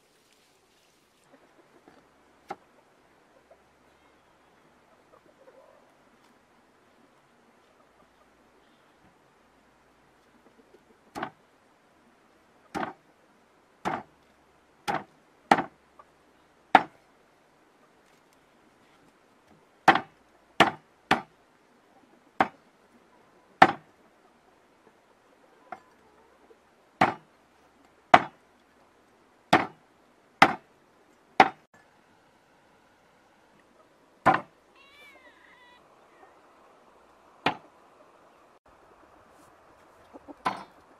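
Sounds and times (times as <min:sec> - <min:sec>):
cleaver chopping fish on wood: 0:13.8 - 0:14.1, 0:14.9 - 0:15.7, 0:16.8 - 0:17.0, 0:19.9 - 0:21.3, 0:23.6 - 0:23.8, 0:27.0 - 0:27.3, 0:28.1 - 0:28.4, 0:29.5 - 0:29.8, 0:30.4 - 0:30.6, 0:31.4 - 0:31.6, 0:34.2 - 0:34.5, 0:37.4 - 0:37.6.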